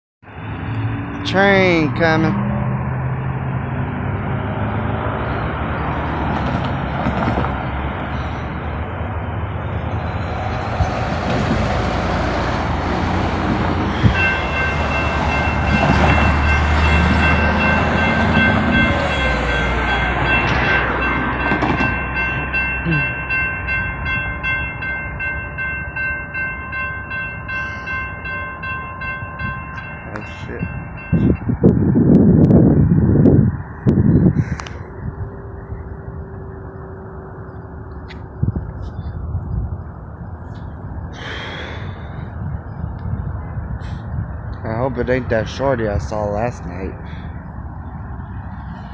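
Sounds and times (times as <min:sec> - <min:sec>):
road traffic: 0:00.2 - 0:48.9
railroad crossing bell ringing: 0:13.8 - 0:31.9, 0:34.8 - 0:42.8.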